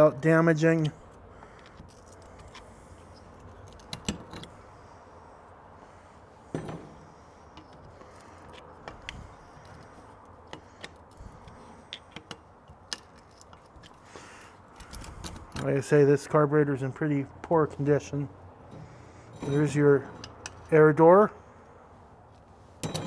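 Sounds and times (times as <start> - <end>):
metal parts and tools clinking: 1.6 - 4.6, 7.6 - 14.1, 14.7 - 15.9, 18.7 - 20.8, 22.8 - 23.0.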